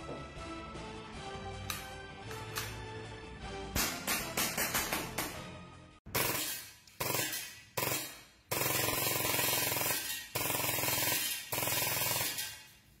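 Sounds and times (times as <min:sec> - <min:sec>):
airsoft pistol firing bursts: 0:06.1 - 0:12.6.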